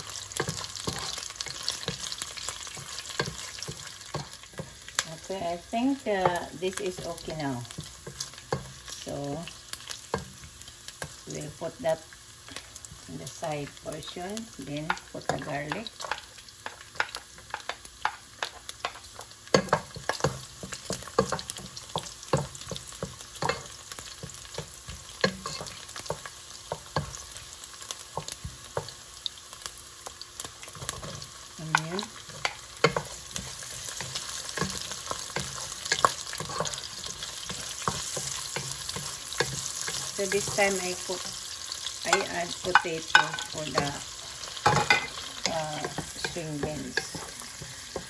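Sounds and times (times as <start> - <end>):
food sizzling in hot oil: 0.0 - 48.0
wooden spatula scraping a pot: 30.6 - 48.0.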